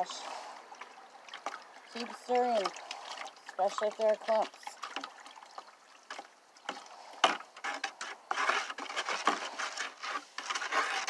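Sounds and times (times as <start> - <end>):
utensil scraping plastic bucket: 6.1 - 11.0.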